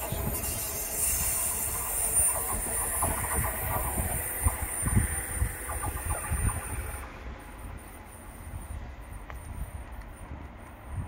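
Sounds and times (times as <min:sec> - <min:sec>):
train wheels rumbling over track: 0:00.0 - 0:11.0.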